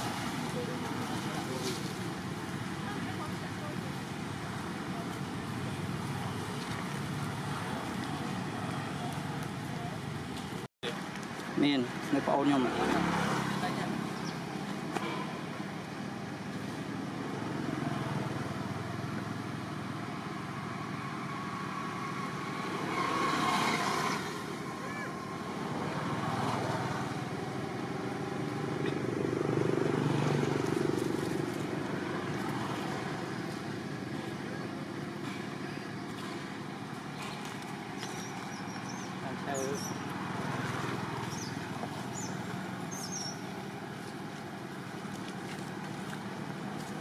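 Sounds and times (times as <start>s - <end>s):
faint distant voices: 0.0s - 11.1s
motor traffic hum: 0.0s - 47.0s
vehicles passing: 0.0s - 47.0s.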